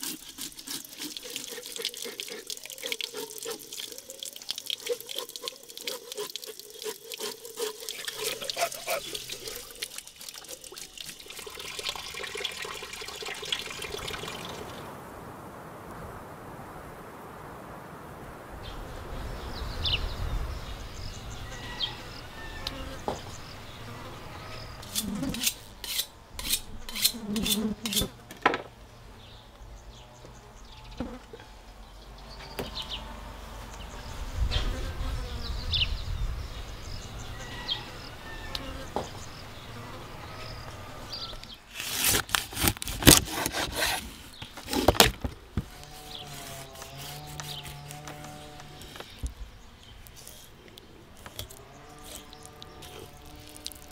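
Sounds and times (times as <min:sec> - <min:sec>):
knife scraping on cutting board: 0:05.8 - 0:09.6, 0:24.8 - 0:28.1
insects buzzing: 0:28.9 - 0:53.9.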